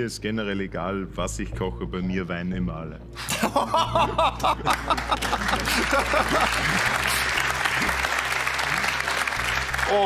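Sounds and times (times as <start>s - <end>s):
audience laughing: 3.3s - 8.0s
audience applauding: 4.6s - 10.0s.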